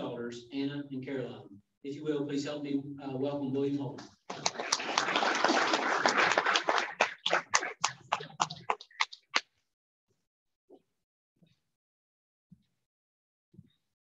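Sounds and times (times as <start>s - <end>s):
audience applauding: 4.3s - 9.4s.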